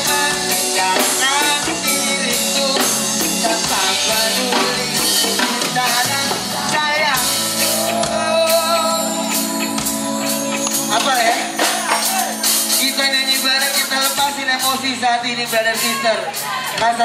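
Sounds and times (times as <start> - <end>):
man singing into microphone: 0.0 - 9.5, 10.9 - 17.0
reggae band playing: 0.0 - 17.0.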